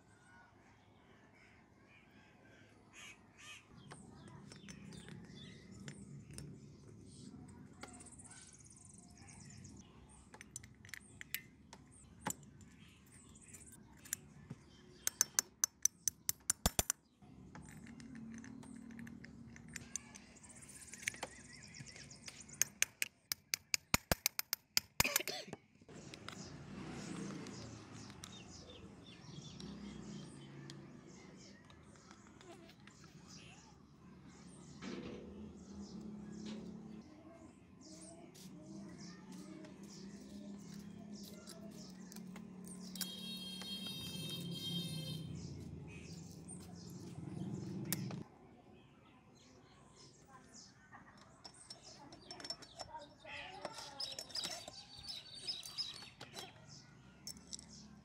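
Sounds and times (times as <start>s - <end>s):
small metal parts clicking: 10.2s - 11.6s, 15.0s - 21.5s, 22.2s - 25.3s, 51.1s - 57.8s.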